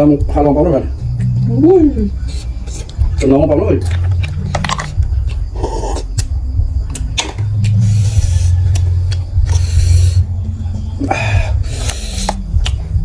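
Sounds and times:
slurping and chewing: 2.2s - 3.0s, 3.8s - 10.3s, 11.1s - 12.8s
shells and utensils clicking: 3.8s - 5.4s.

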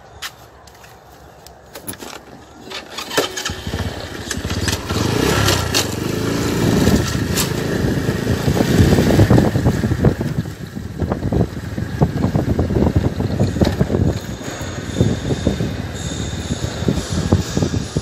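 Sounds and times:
engine running: 2.6s - 18.0s.

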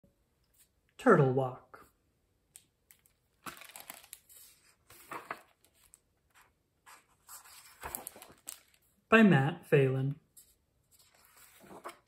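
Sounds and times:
book pages rustling: 2.9s - 8.9s, 10.3s - 12.0s.

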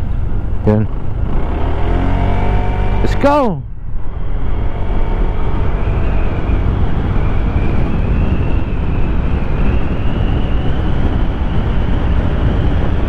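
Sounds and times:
faint whine rising in pitch: 0.0s - 13.0s
wind rumble on microphone: 0.0s - 13.0s
scooter engine at full throttle: 0.6s - 3.3s, 4.0s - 8.2s.

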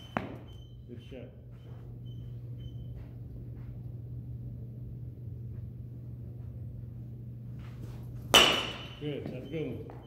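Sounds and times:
steady low hum: 0.0s - 10.0s
baseball bat hitting ball: 8.3s - 9.1s.

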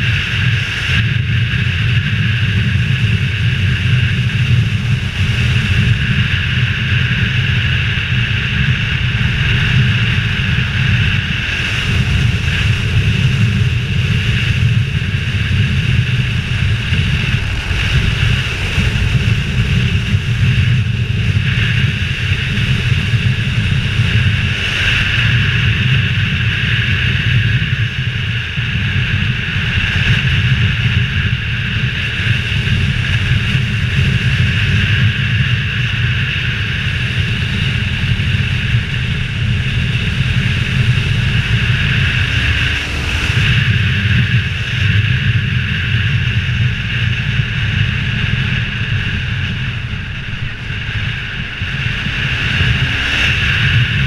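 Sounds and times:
wind rushing over camera: 0.0s - 54.0s
motorcycle engine cruising: 3.2s - 26.5s, 37.2s - 46.8s.

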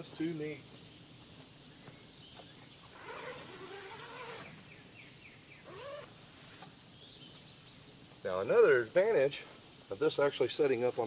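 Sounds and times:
faint bird calls and chirps: 0.0s - 8.8s.

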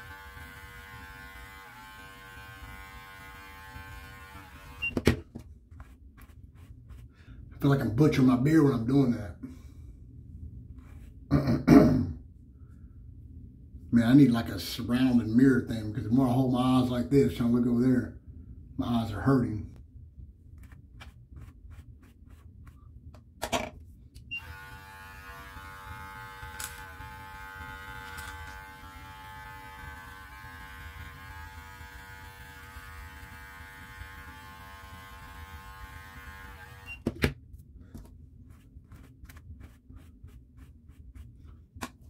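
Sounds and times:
electric clippers buzzing: 0.0s - 5.0s, 24.3s - 37.0s.

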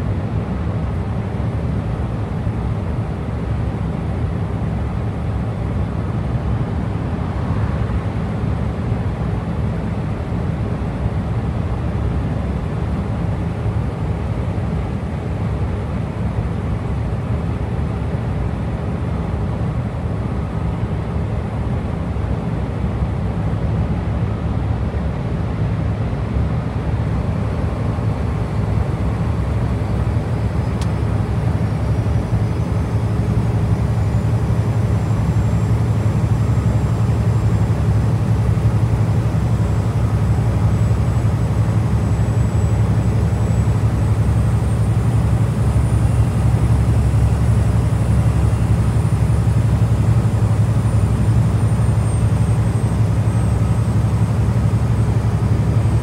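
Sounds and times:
diesel truck engine drone: 0.0s - 56.0s
faint high whine: 27.2s - 56.0s.

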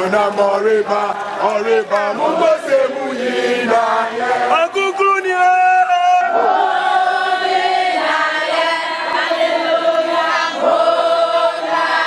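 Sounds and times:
women singing a hymn: 0.0s - 5.0s, 6.3s - 12.0s.

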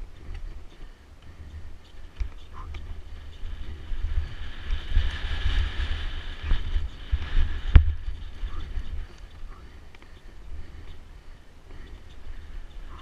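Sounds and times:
bike rattling over rough ground: 0.0s - 13.0s
bike tyres rolling on dirt: 0.0s - 13.0s
wind buffeting microphone: 0.0s - 13.0s.

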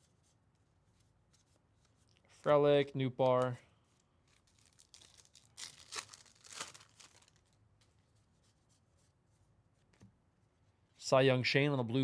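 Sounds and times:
wrapper ripping and crinkling: 4.2s - 7.6s.

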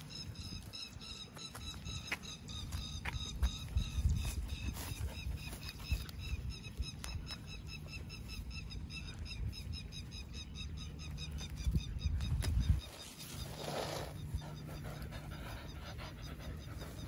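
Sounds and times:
dogs rustling through grass: 3.7s - 7.1s.

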